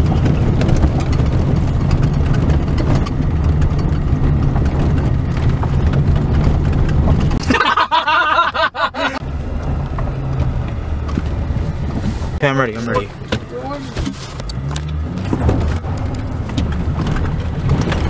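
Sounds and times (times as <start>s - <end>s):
rattles and knocks: 0.0s - 7.7s, 13.1s - 18.0s
vehicle engine rumble: 0.0s - 18.0s.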